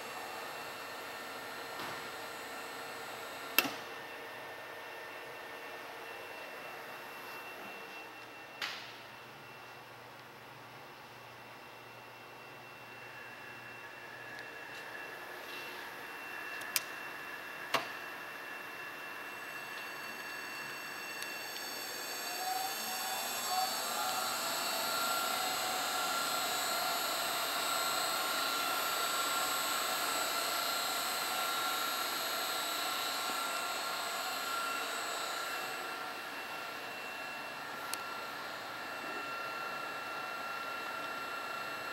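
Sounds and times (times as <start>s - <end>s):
electric gear motors whining: 19.2s - 41.9s.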